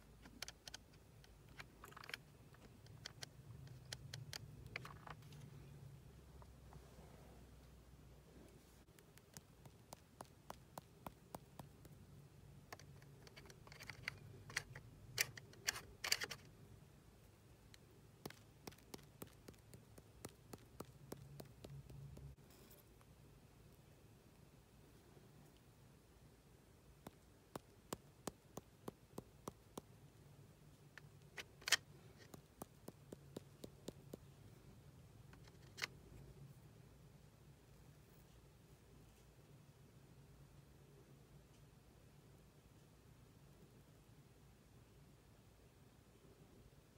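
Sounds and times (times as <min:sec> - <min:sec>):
pen clicks and taps: 0:08.9 - 0:12.0, 0:18.2 - 0:22.4, 0:31.5 - 0:34.3.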